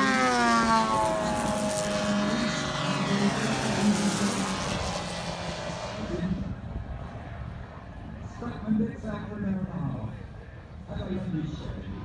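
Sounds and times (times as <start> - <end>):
model plane engine flying past: 0.0 - 7.3.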